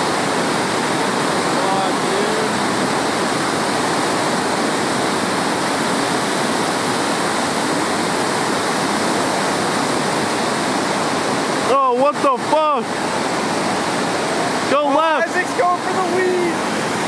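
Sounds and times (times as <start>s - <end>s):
river rapid rushing: 0.0s - 17.0s.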